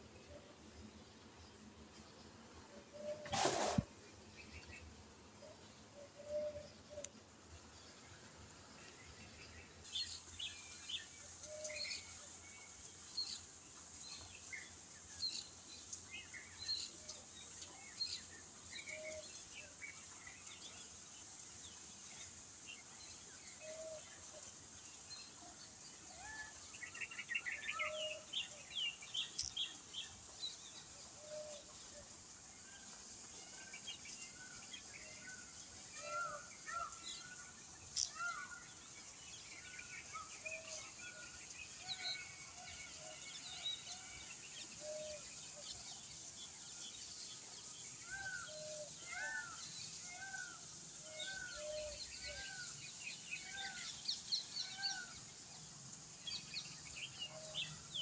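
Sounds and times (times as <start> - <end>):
steady high hiss: 0.0 - 58.0
birds chirping and calling: 48.1 - 52.7.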